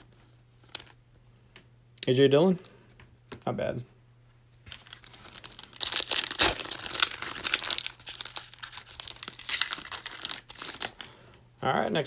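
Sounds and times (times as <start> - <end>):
foil wrapper tearing and crinkling: 4.7 - 11.0.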